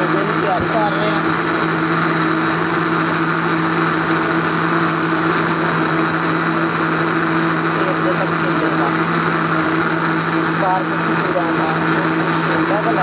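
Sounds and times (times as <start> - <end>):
blender motor running: 0.0 - 13.0.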